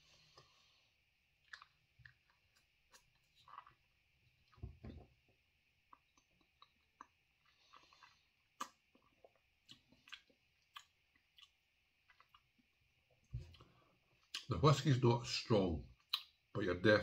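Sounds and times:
wet mouth clicks and lip smacks: 1.5 - 2.2, 8.0 - 12.4, 16.0 - 16.4.

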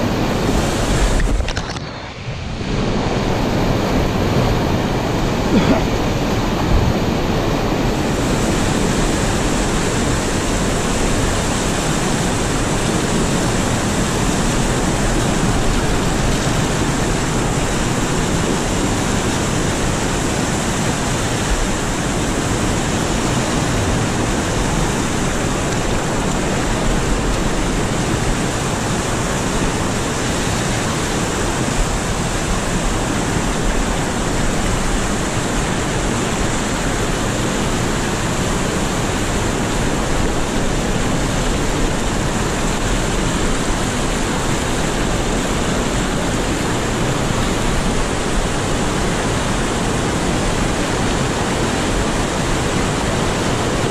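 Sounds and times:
water rushing over rocks: 0.0 - 53.9.

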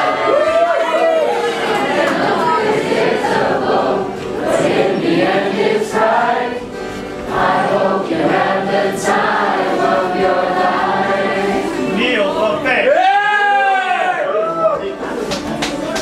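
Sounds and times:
choir singing: 1.3 - 12.9.

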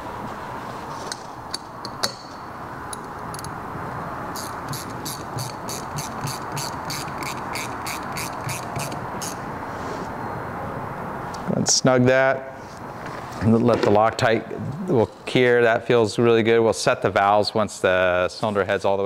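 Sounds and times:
hand ratchet clicking: 4.4 - 9.4.

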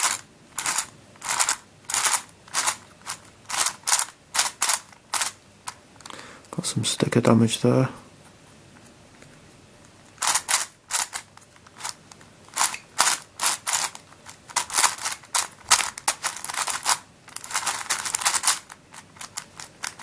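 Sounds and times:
puzzle cube clicking as turned: 0.0 - 5.4, 10.2 - 20.0.

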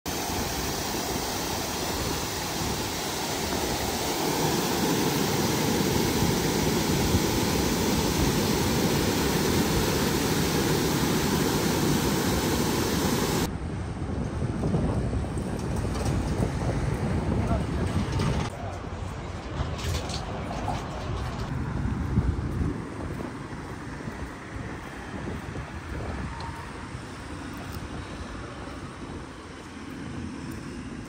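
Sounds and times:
steady rushing noise: 0.1 - 31.0.

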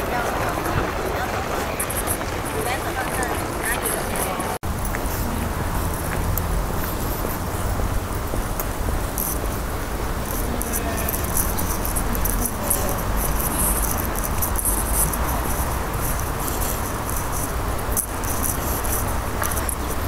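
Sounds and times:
cicadas buzzing: 0.0 - 20.0
steady low rumble: 4.4 - 20.0.

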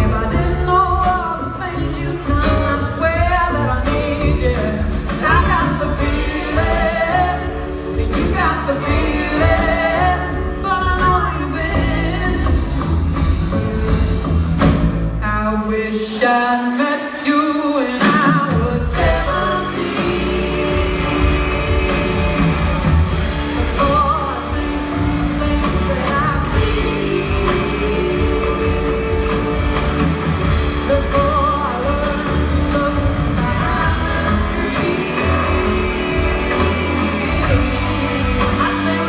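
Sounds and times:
woman singing: 0.0 - 12.9, 15.2 - 39.0
live band playing: 0.0 - 39.0.

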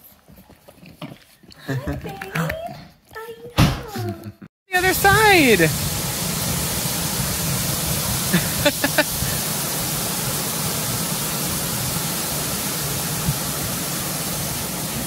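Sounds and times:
water pouring and splashing: 4.8 - 15.0.

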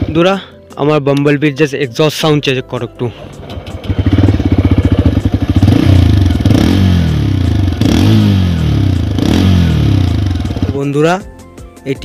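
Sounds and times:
motorcycle engine idling and revving: 3.1 - 11.2.

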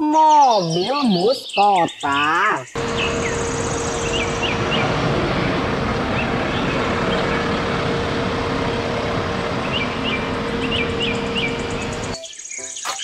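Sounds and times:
bird chirps: 0.1 - 5.0, 9.6 - 13.0
street traffic noise: 2.6 - 12.2
bus engine whine: 2.8 - 12.2.

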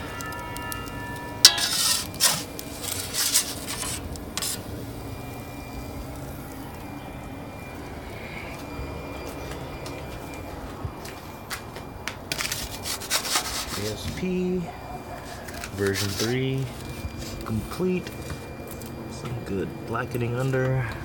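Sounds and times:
metal clanking and scraping: 0.0 - 4.7
steady low rumble: 3.7 - 12.3.

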